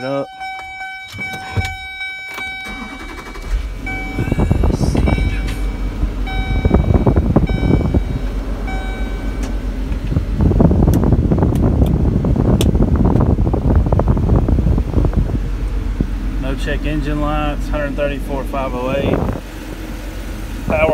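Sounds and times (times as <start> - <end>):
dashboard warning chime beeping: 0.0 - 10.0
diesel engine idling: 0.0 - 20.9.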